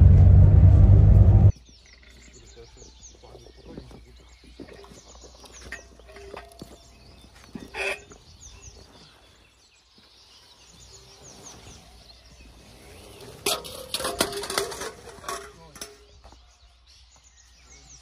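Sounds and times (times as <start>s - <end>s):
birds chirping: 1.4s - 18.0s
hose knocking and clattering on stone: 13.4s - 16.2s.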